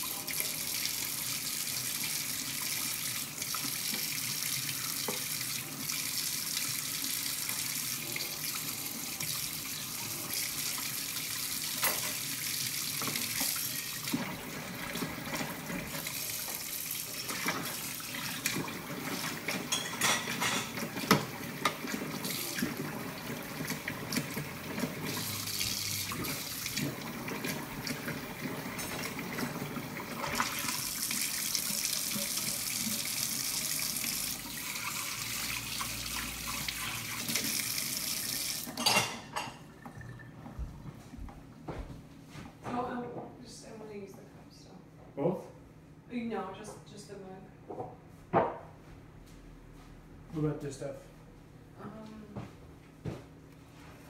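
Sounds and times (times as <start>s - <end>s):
dishes being scrubbed: 17.3s - 22.8s.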